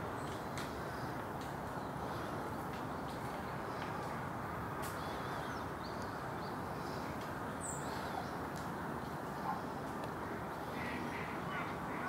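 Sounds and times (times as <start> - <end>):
high bird calls: 10.3 - 12.0.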